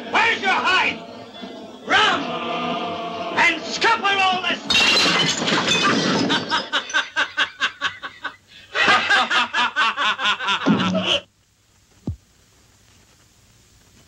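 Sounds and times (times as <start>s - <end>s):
men laughing: 5.4s - 11.3s.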